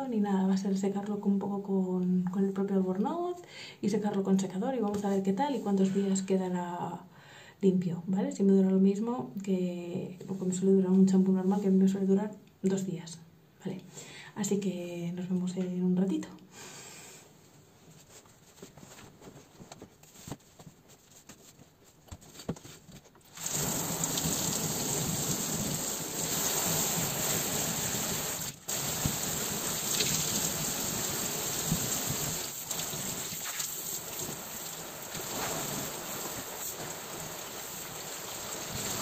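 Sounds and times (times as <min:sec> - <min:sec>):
shower water spraying: 0:23.4 - 0:39.0.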